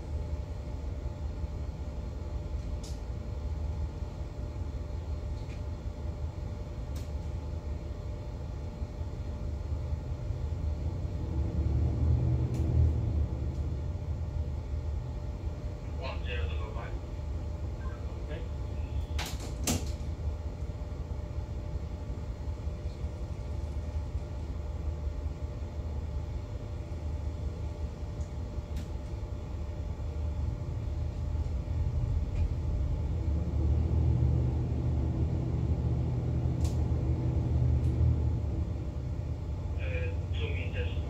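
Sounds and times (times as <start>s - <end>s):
boat engines rumbling: 35.9s - 41.0s.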